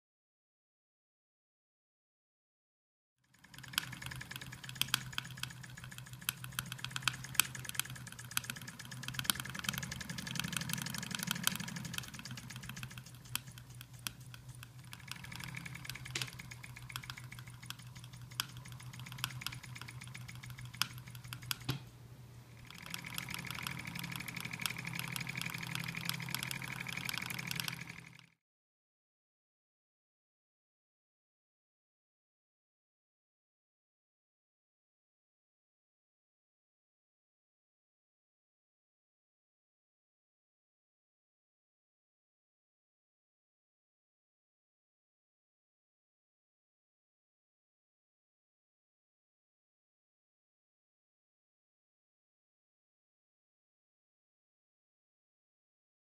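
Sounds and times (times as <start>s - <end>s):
sewing machine running: 3.3s - 21.8s, 22.5s - 28.4s.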